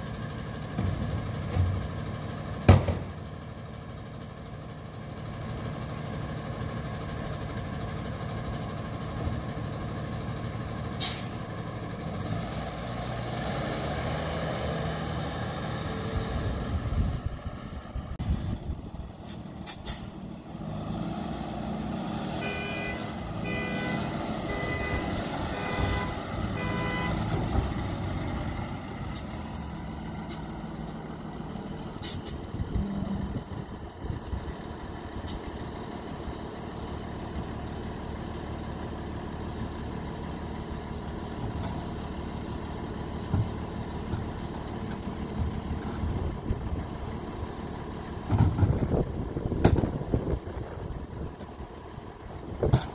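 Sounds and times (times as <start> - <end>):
diesel engine running: 0.0 - 52.9
reversing alarm beeping: 22.4 - 27.2.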